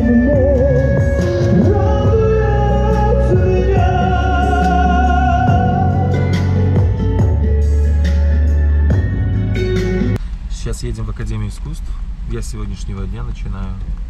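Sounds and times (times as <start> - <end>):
man singing into a microphone: 0.0 - 6.5
backing track music: 0.0 - 10.2.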